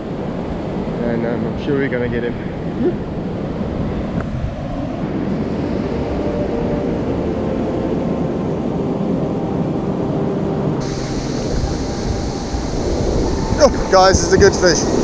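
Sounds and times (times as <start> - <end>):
wind buffeting microphone: 0.0 - 15.0
breaking surf: 10.8 - 15.0.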